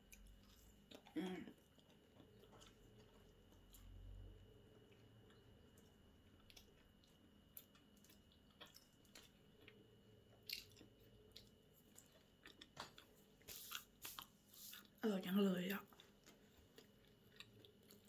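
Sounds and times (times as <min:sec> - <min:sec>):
faint chewing: 0:00.0 - 0:15.0, 0:15.7 - 0:18.0.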